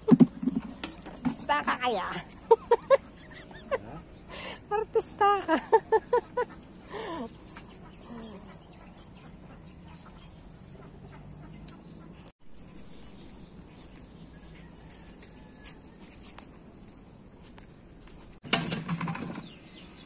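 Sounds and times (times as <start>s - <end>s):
insects droning: 0.0s - 20.0s.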